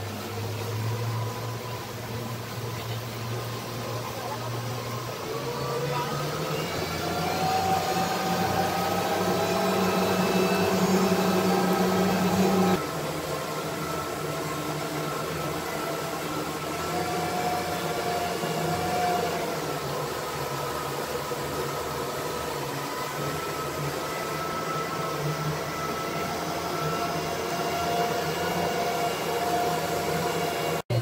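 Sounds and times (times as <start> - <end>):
boat engine droning: 0.0 - 31.0.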